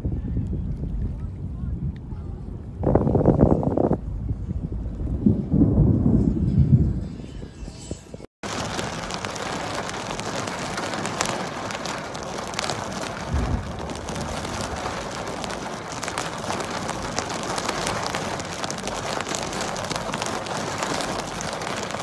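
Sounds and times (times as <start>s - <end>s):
rain on car windscreen: 2.8s - 4.0s, 8.4s - 22.0s
low thump: 13.2s - 14.6s.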